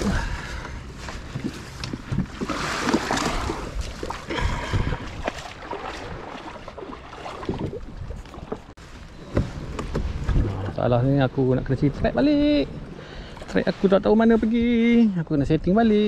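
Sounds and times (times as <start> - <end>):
waves slapping against kayak: 1.1 - 10.7.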